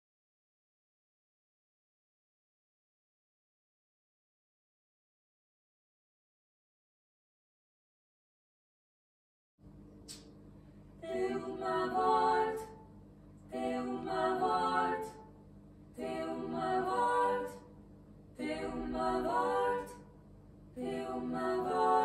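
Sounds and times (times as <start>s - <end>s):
women singing a cappella: 11.0s - 15.4s, 16.0s - 17.8s, 18.4s - 20.2s, 20.8s - 22.0s.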